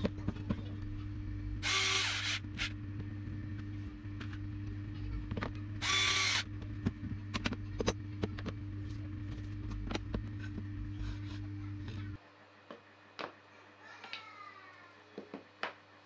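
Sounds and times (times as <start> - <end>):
steady low hum: 0.0 - 13.8
cordless drill driving screws: 1.6 - 2.7, 5.8 - 6.4.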